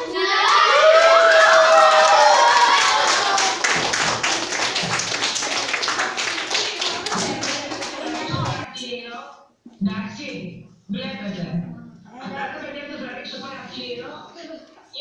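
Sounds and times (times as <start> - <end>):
children cheering: 0.0 - 8.3
fast dense applause: 0.4 - 8.7.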